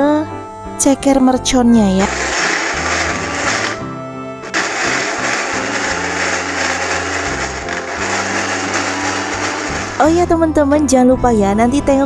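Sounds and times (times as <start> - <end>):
electric chopper whirring: 2.0 - 3.8, 4.4 - 10.1.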